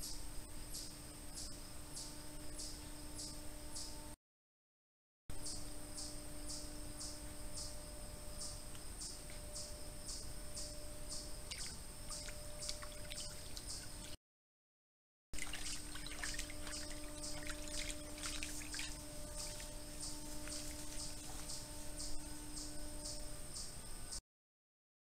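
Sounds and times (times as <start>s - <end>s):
faint steady hum: 0.0s - 4.2s, 5.3s - 14.2s, 15.4s - 24.2s
insect chirping: 0.0s - 4.2s, 5.3s - 14.2s, 15.4s - 24.2s
animal lapping water: 11.5s - 13.7s, 15.4s - 19.7s
splashing through shallow creek: 11.5s - 14.2s, 15.4s - 21.6s.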